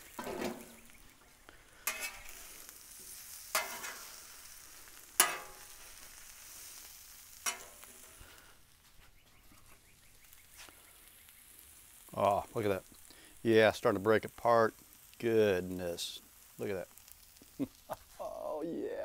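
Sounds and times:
food sizzling on griddle: 0.0 - 19.0
metal spatulas scraping griddle: 0.1 - 0.8, 1.8 - 2.5, 3.1 - 4.2, 5.2 - 5.8, 7.4 - 8.2.

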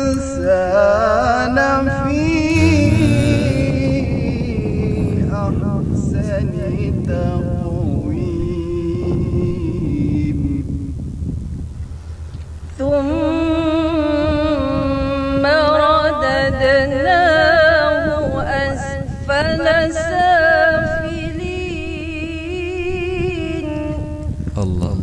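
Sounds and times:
steady low rumble: 2.2 - 9.0
woman chanting melodically: 2.4 - 7.4, 12.8 - 24.3.

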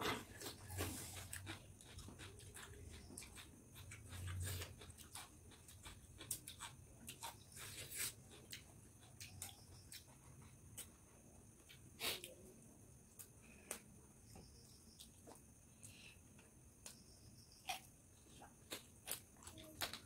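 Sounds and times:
chewing sounds: 0.0 - 11.0.

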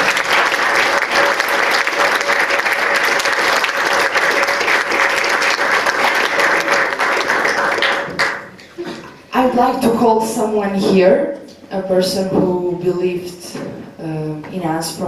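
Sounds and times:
audience applauding: 0.0 - 8.9.

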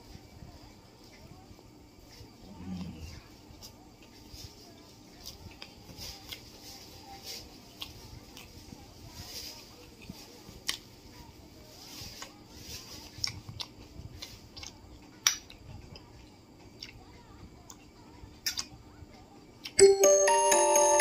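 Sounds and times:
chiming bell-like music: 19.8 - 21.0.

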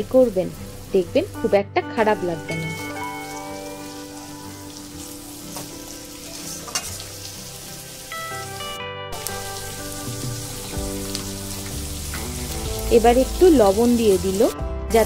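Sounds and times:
food frying in hot oil: 0.0 - 1.4, 2.7 - 15.0
spatula scraping pan: 6.3 - 7.1.

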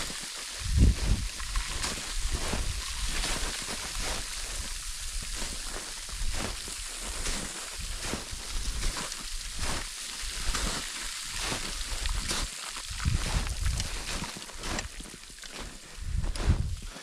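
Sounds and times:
footsteps crunching on snow: 0.0 - 17.0
wind rumble on microphone: 0.6 - 9.8, 11.9 - 14.8, 16.0 - 16.9.

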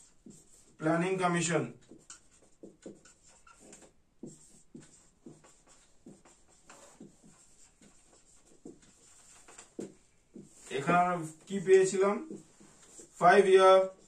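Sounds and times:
marker writing on whiteboard: 0.0 - 14.0.

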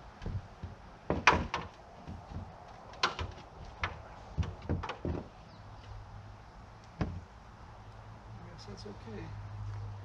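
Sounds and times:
hammer knocking on plywood: 0.2 - 5.3, 7.0 - 7.2.

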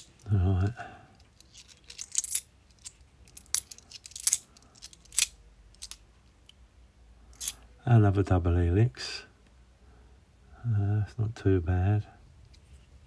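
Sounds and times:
coins clinking together: 1.4 - 6.0.

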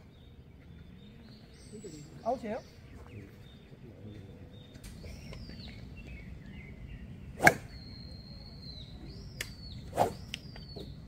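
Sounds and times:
birds whistling: 0.0 - 11.0
golf club striking ball: 7.4 - 7.7.

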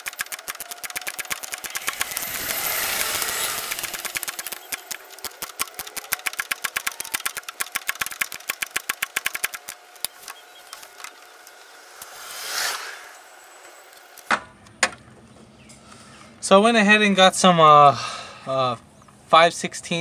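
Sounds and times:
ratchet wrench clicking: 0.0 - 11.1
rustling scrape: 11.2 - 13.6.

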